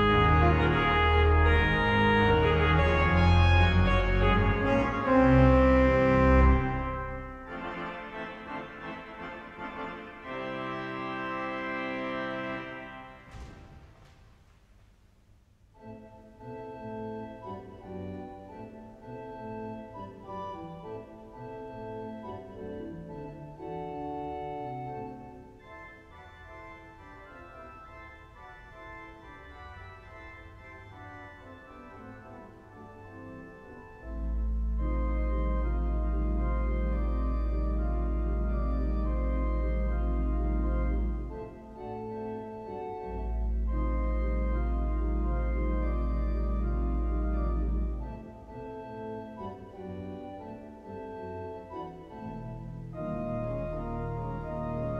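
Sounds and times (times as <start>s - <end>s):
pipe organ playing fanfare chords: 0.0s - 13.3s, 15.8s - 54.9s
deep organ pedal note: 0.0s - 14.4s, 15.8s - 54.9s.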